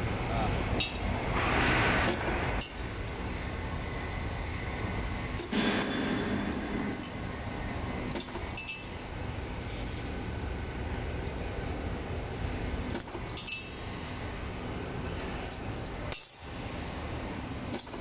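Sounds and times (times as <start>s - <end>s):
roll forming machine running: 0.0s - 12.6s.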